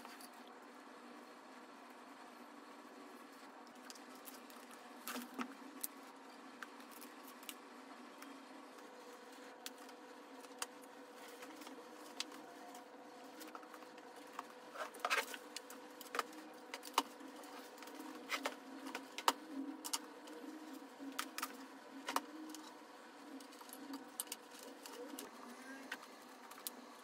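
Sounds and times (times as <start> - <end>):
faint hum: 0.0 - 27.0.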